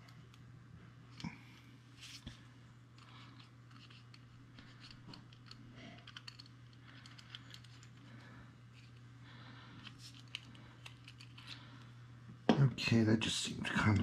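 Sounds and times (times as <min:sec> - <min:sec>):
low steady hum: 0:00.0 - 0:14.0
metal parts clicking and scraping: 0:03.0 - 0:08.0, 0:09.8 - 0:11.6.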